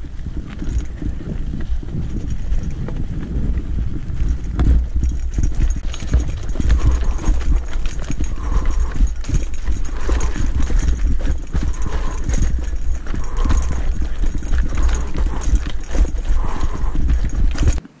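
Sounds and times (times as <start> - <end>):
steady low rumble: 0.0 - 17.8
tyres crunching on stones: 0.0 - 17.8
bike rattling: 0.0 - 18.0.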